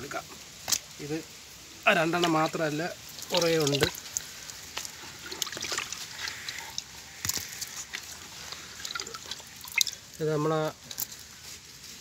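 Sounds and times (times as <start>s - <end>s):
wet fish slapping on concrete: 3.2s - 10.0s.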